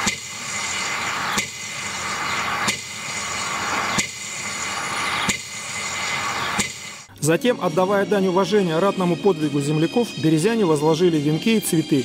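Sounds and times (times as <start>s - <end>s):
steady hiss: 0.0s - 7.1s.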